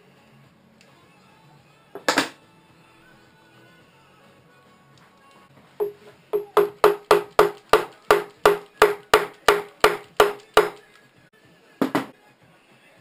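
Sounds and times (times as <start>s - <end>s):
tool tapping on metal: 2.0s - 2.4s, 5.8s - 10.8s, 11.8s - 12.1s.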